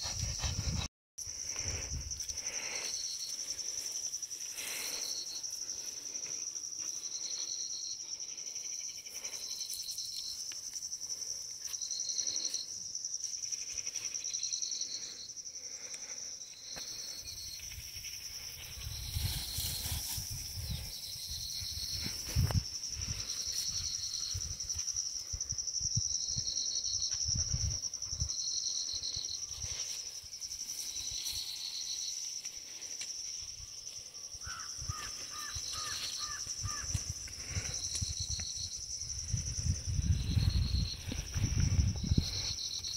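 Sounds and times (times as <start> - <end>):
insects trilling: 0.0 - 42.9.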